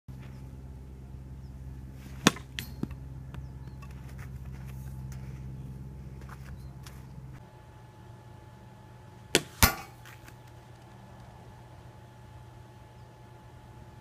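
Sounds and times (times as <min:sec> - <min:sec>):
low hum: 0:00.1 - 0:14.0
bat hitting ball: 0:01.6 - 0:05.2, 0:09.3 - 0:10.4
ball landing knocks: 0:02.0 - 0:04.8, 0:09.4 - 0:10.4.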